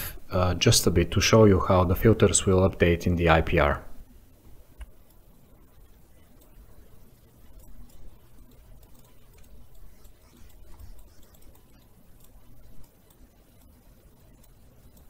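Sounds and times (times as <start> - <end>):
low room hum: 0.0 - 15.0
computer mouse clicks: 4.5 - 15.0.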